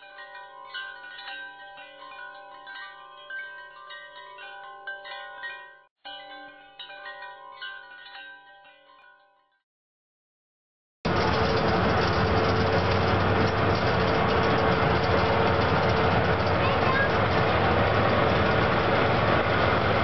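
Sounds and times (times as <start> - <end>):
bell-like ringing tones: 0.0 - 9.6.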